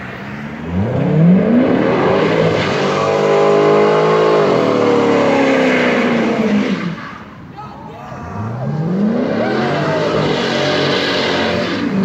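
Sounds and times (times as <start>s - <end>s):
car engine revving hard: 0.0s - 7.0s, 8.4s - 12.0s.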